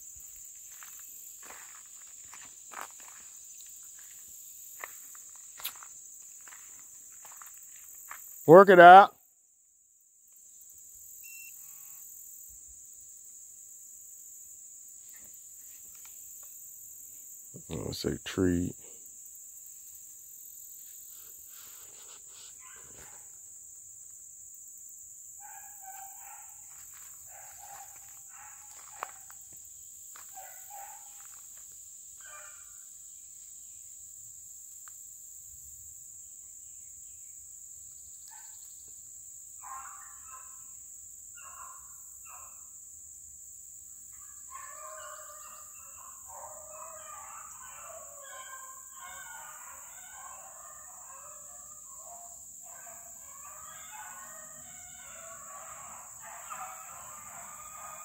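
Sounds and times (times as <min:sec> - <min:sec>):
crickets droning: 0:00.0 - 0:58.0
distant hounds barking and baying: 0:21.8 - 0:23.5, 0:25.4 - 0:31.6, 0:32.2 - 0:32.8, 0:39.6 - 0:42.7, 0:44.0 - 0:58.0.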